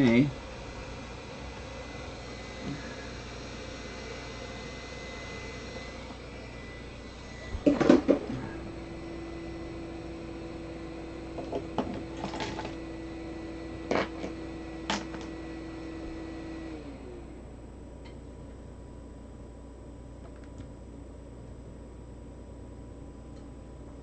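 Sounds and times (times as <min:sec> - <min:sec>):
hot-air gun fan humming: 0:00.0 - 0:24.0
hot-air gun set down clattering: 0:07.6 - 0:08.4.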